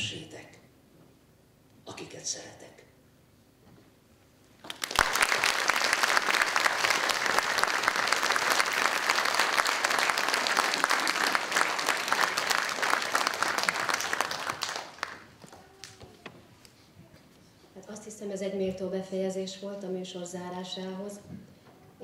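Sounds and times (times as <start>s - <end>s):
audience applauding: 4.6s - 16.1s.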